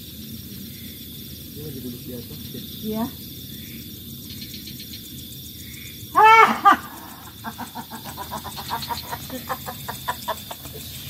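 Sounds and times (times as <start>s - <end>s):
person crying out: 6.2s - 7.6s
cackling laugh-like yelps: 6.2s - 11.0s.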